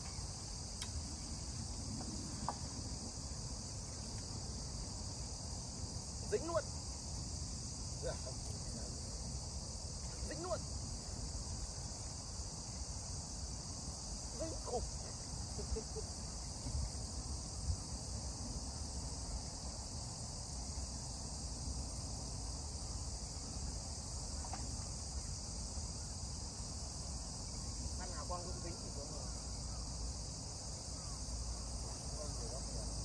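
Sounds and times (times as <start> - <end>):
insects chirping in grass: 0.0 - 33.0.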